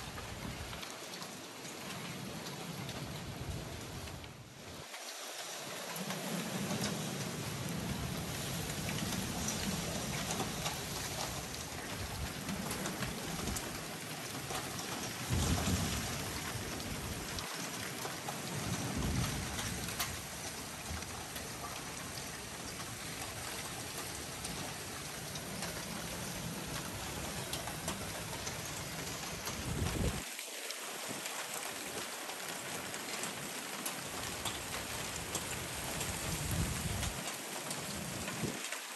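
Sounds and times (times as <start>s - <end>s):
hail and heavy rain pelting roofs: 0.0s - 38.9s
hailstones clicking: 0.0s - 38.9s
low thunder rumbles: 14.5s - 17.4s, 18.1s - 23.2s, 23.9s - 30.2s, 35.7s - 37.2s.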